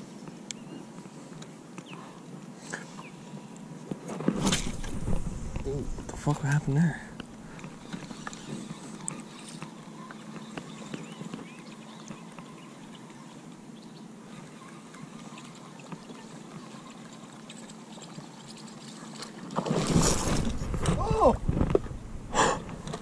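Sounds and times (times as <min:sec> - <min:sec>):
water lapping at boat: 0:07.2 - 0:19.7.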